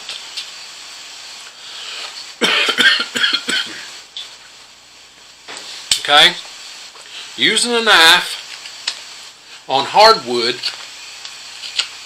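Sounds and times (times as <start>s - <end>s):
steady low hiss: 0.0s - 12.0s
man coughing: 2.4s - 3.9s.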